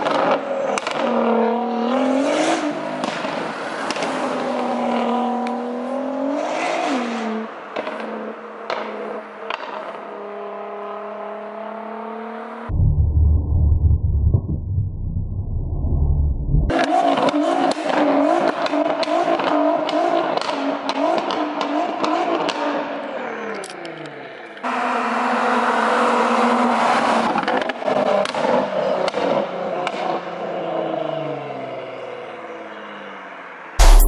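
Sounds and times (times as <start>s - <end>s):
sports car accelerating hard: 0.0s - 12.8s, 16.3s - 33.1s
exhaust crackling and popping: 12.7s - 16.7s.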